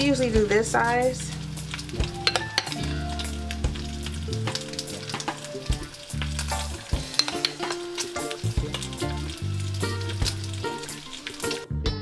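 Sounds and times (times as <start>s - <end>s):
batter sizzling in a frying pan: 0.0s - 11.8s
background music with bass line: 0.0s - 12.0s
metal spoon scraping glass bowl: 7.0s - 7.7s.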